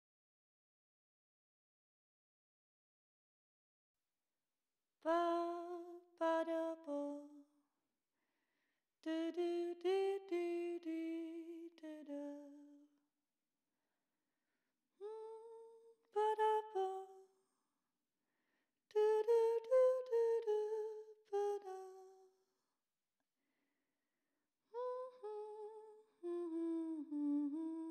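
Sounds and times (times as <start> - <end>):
woman humming a slow melody: 24.8 - 27.9.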